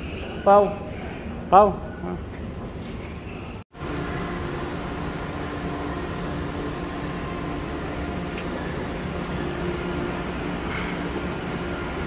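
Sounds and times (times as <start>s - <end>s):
faint high whine: 3.8s - 12.0s.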